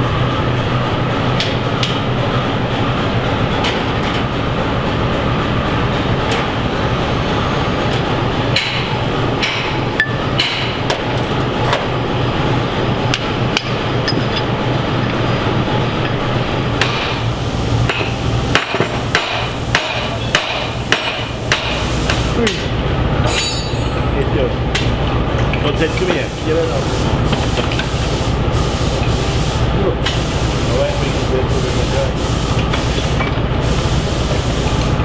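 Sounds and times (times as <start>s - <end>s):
steady low hum: 0.0s - 35.0s
hammer striking metal: 8.5s - 11.3s, 16.8s - 17.2s, 17.9s - 21.8s, 23.2s - 24.0s.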